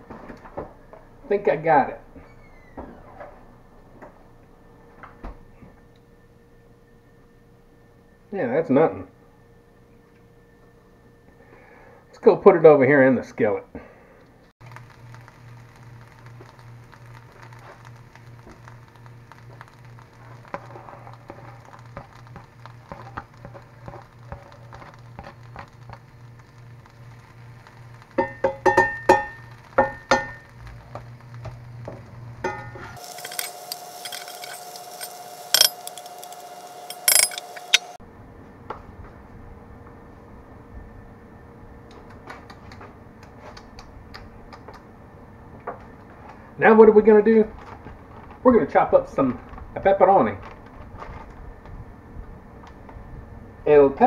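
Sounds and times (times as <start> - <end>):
knife clinking on skillet: 32.5 - 37.9.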